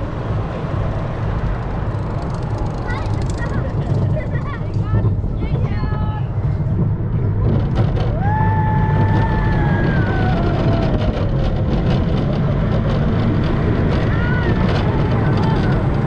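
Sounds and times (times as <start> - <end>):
roller coaster rumbling on track: 0.0 - 16.0
rider whooping: 8.0 - 12.9.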